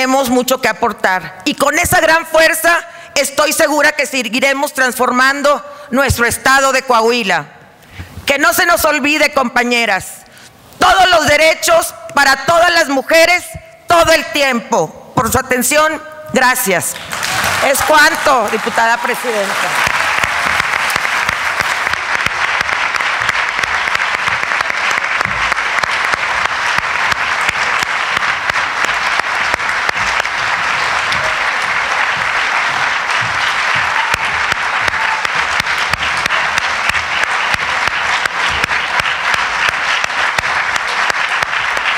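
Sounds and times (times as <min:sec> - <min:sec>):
crowd applause: 0:17.0 - 0:41.9.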